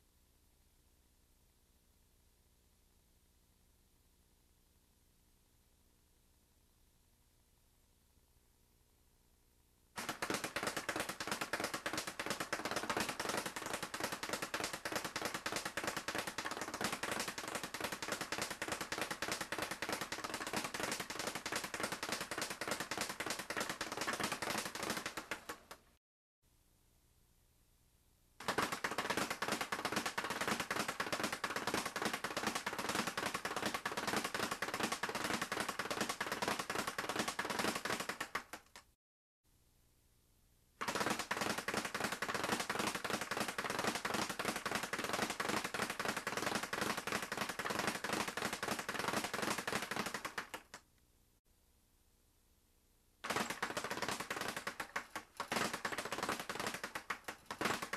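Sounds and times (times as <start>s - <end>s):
speed bag rattling: 10.0s - 25.8s, 28.4s - 38.6s, 40.8s - 50.7s, 53.2s - 57.9s.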